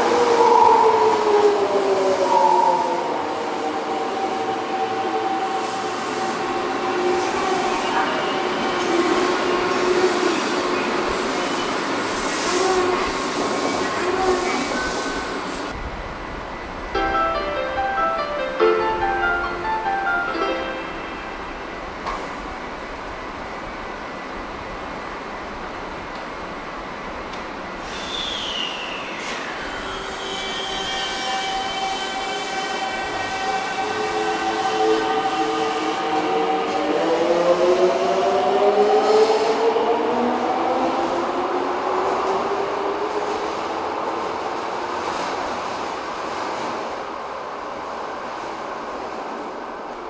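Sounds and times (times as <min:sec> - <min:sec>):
subway train inverter whine: 0:00.0 - 0:50.0
air hiss: 0:27.8 - 0:29.8.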